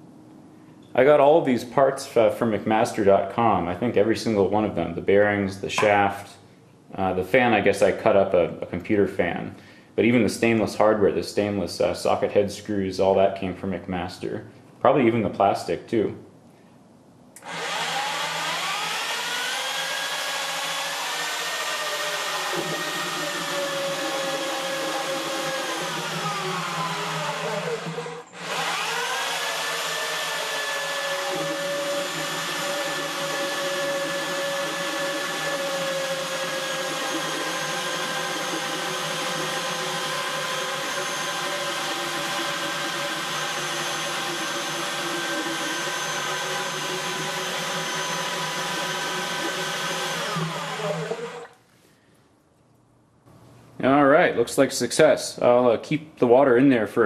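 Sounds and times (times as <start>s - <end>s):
drill motor whine: 17.4s - 51.5s.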